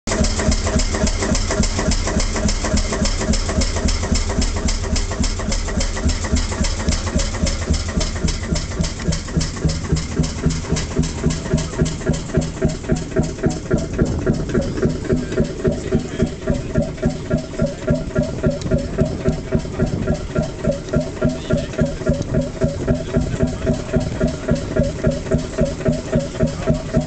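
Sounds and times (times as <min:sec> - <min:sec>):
boat engine idling: 0:00.1 - 0:27.0.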